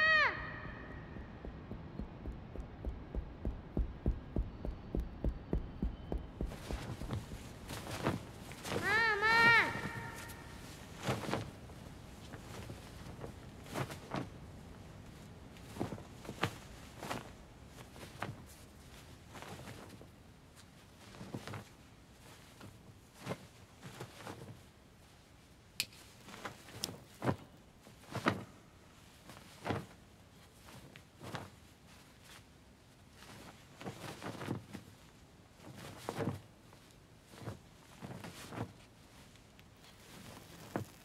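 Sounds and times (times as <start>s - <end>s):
knocks clicks and thuds: 1.0s - 7.4s.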